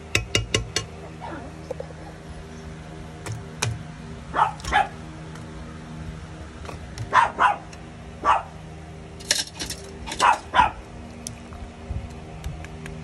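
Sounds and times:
steady low hum: 0.0 - 13.0
small dog barking: 4.3 - 5.0, 7.0 - 8.6, 10.1 - 10.8.

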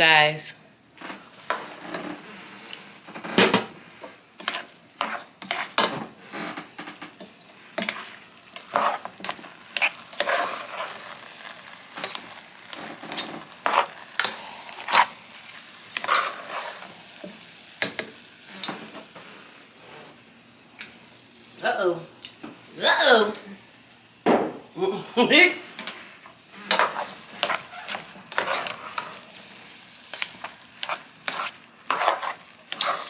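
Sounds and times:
rice sizzling: 0.0 - 33.0
spoon scraping metal pot: 4.4 - 6.0, 7.2 - 11.2, 15.9 - 16.8, 26.6 - 29.2, 30.2 - 33.0.

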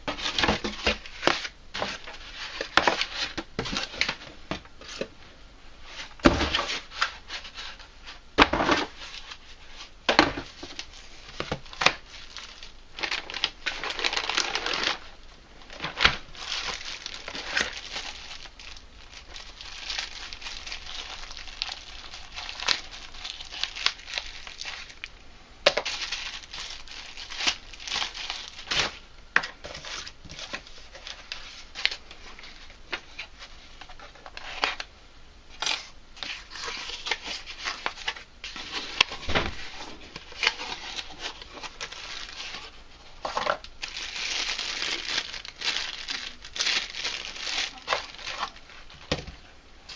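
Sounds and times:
plastic bags crinkling: 5.8 - 34.9, 35.5 - 49.3
cardboard rustling and tearing: 8.5 - 15.1, 15.7 - 25.1, 25.7 - 29.0, 35.8 - 49.2.

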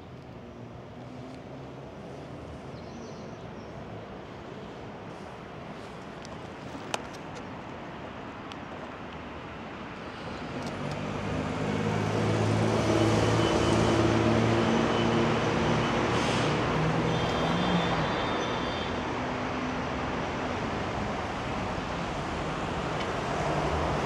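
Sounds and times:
low traffic hum: 0.0 - 24.0
cars driving past: 9.5 - 24.0.

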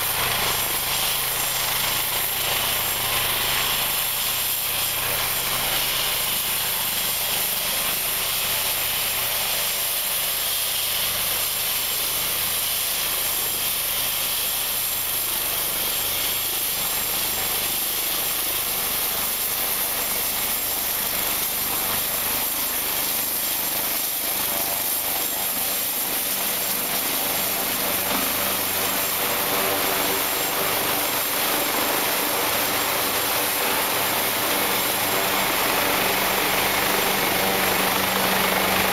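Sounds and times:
helicopter rotor noise: 21.0 - 38.9
helicopter turbine whine: 22.5 - 38.9.

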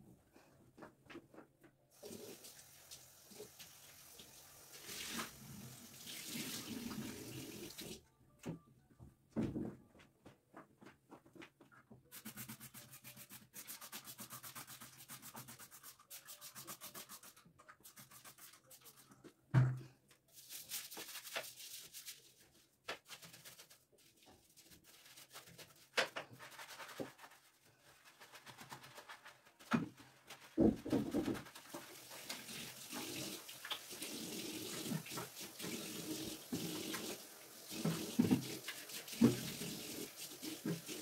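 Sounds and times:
scrubbing washbasin: 20.3 - 41.0.

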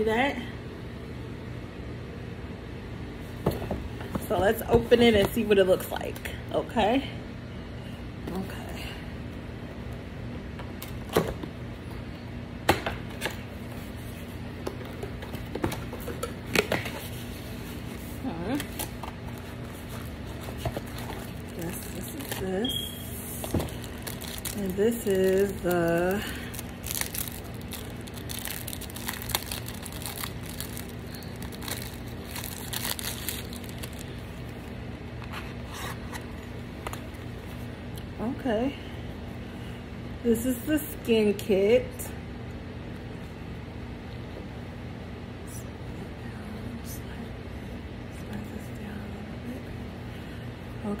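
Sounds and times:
plastic wrapping crinkling: 16.8 - 34.7.

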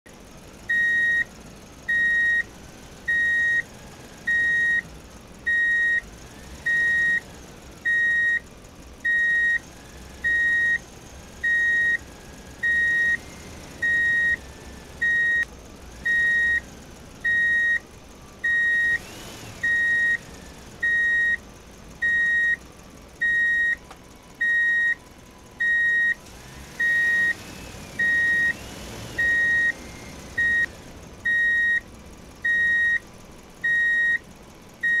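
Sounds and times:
reversing alarm beeps: 0.7 - 1.3, 1.9 - 2.5, 3.1 - 3.6, 4.3 - 4.8, 5.5 - 6.0, 6.7 - 7.2, 7.9 - 8.4, 9.1 - 9.6, 10.2 - 10.8, 11.4 - 12.0, 12.6 - 13.2, 13.8 - 14.4, 15.0 - 15.4, 16.1 - 16.6, 17.3 - 17.8, 18.4 - 19.0, 19.6 - 20.2, 20.8 - 21.4, 22.0 - 22.6, 23.2 - 23.8, 24.4 - 25.0, 25.6 - 26.2, 26.8 - 27.4, 28.0 - 28.6, 29.2 - 29.8, 30.4 - 30.7, 31.3 - 31.8, 32.4 - 33.0, 33.6 - 34.2.

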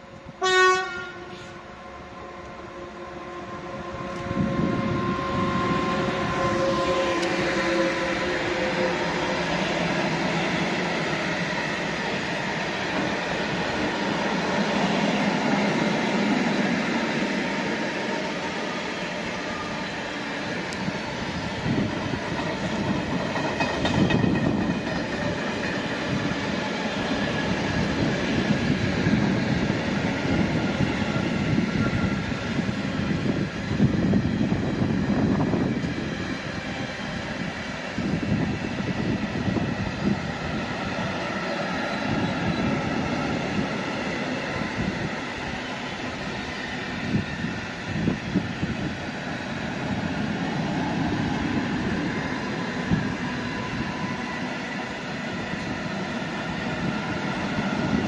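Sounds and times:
train wheels rumbling on rails: 3.5 - 58.0.

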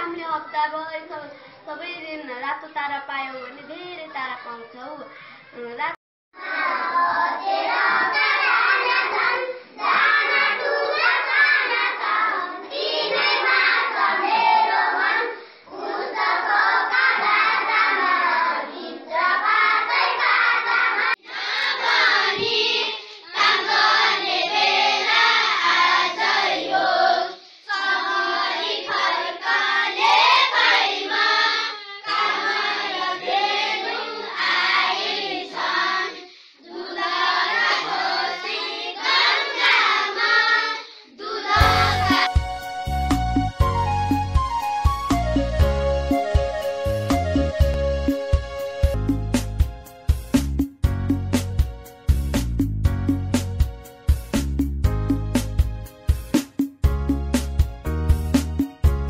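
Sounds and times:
children singing: 6.4 - 42.5.

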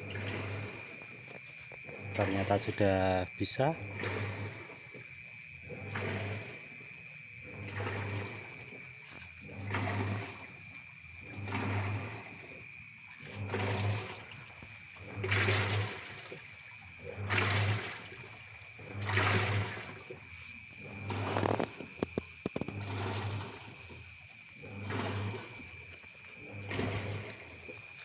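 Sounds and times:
washing machine motor humming: 0.0 - 28.0
water sloshing: 0.0 - 28.0.

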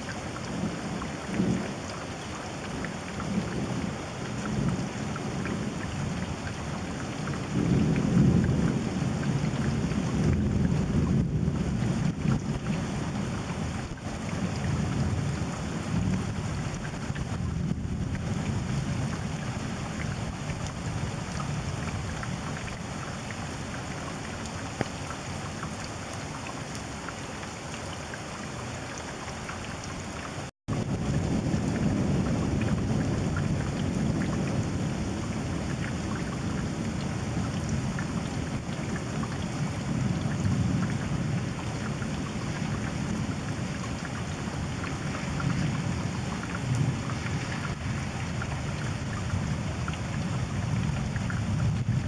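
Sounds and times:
rain drops ticking: 0.0 - 52.0
wind rumble on microphone: 2.8 - 28.3, 29.7 - 52.0
distant thunder rumbling: 30.7 - 41.6.

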